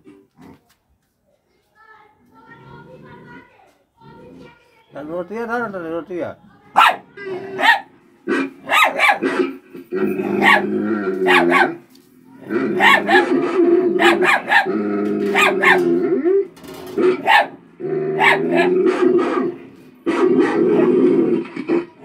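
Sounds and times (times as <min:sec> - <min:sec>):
puppy growling: 0:02.5 - 0:04.6, 0:06.8 - 0:11.8, 0:12.4 - 0:22.0
puppy barking: 0:06.7 - 0:09.6, 0:10.3 - 0:11.8, 0:12.7 - 0:16.0, 0:17.0 - 0:21.0.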